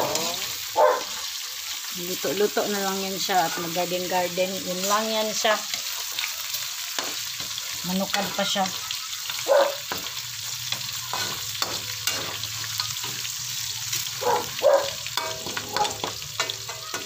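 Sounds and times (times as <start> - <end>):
meat sizzling in oil: 0.0 - 17.0
spatula scraping a wok: 4.7 - 17.0.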